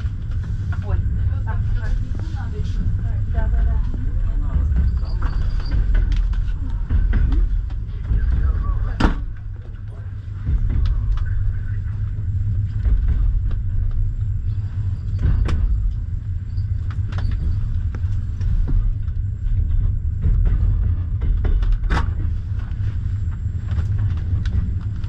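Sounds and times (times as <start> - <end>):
train coach rumbling on track: 0.0 - 25.0
clicks and squeaks from running gear: 4.9 - 6.6, 16.5 - 18.3.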